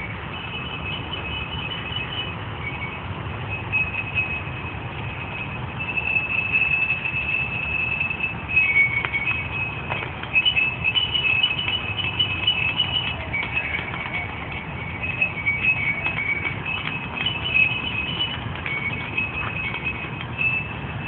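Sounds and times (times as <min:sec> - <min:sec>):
glass bottles ringing chime-like: 0:10.5 - 0:21.0.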